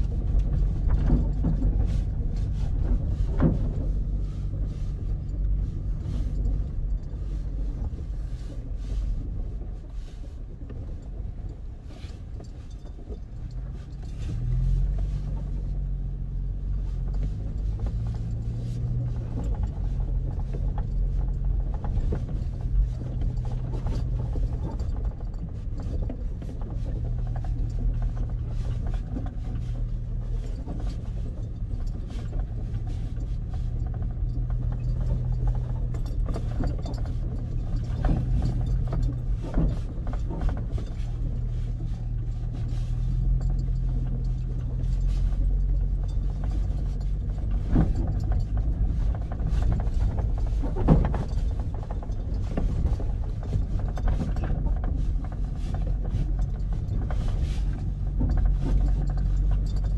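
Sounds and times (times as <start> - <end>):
car engine running: 0.0 - 59.9
tyres rumbling on gravel: 0.0 - 59.9.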